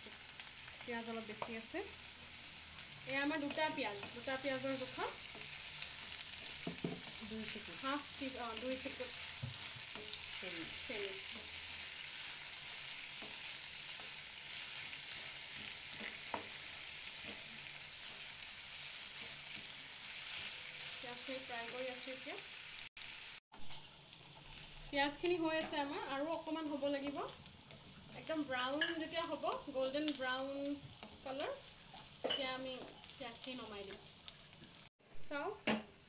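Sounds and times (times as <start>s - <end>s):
onions sizzling in oil: 0.0s - 36.0s
spatula scraping pan: 3.4s - 21.1s.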